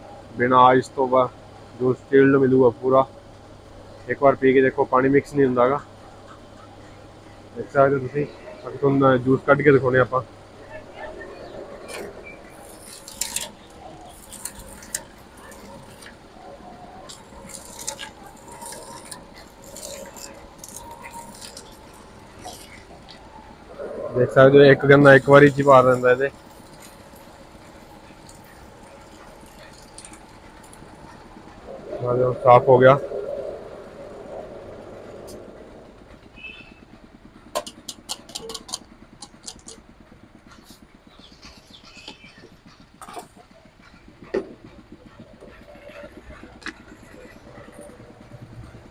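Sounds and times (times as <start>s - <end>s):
machine hum: 0.0s - 48.9s
rollers crushing sugarcane: 4.3s - 48.9s
sharp clicks and knocks: 37.5s - 39.9s.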